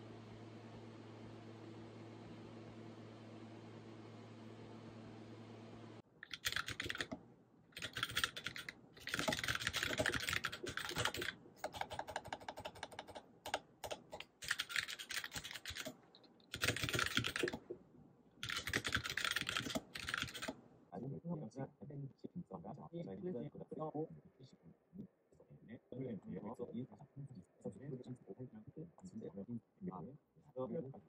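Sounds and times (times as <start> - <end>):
fast typing on keyboard: 6.2 - 7.2, 7.8 - 17.7, 18.4 - 20.5.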